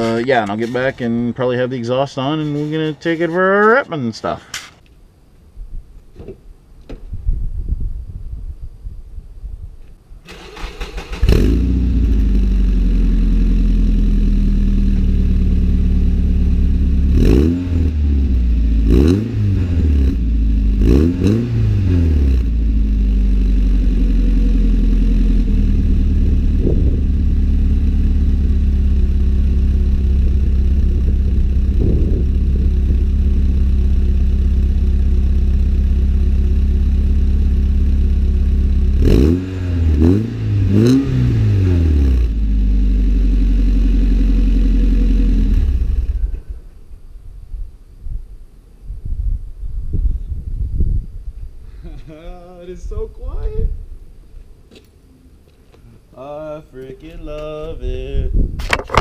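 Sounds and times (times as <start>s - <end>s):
car engine idling: 10.3s - 17.4s, 21.8s - 39.2s, 42.2s - 47.1s
engine revving in short blips: 25.4s - 33.6s.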